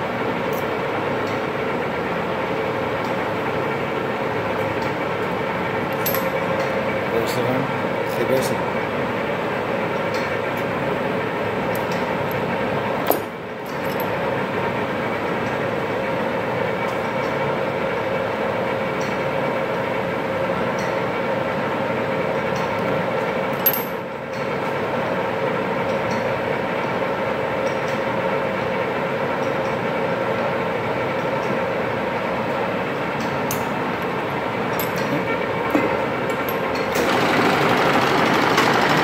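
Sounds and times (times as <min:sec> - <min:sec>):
lathe running: 0:33.8 - 0:39.0.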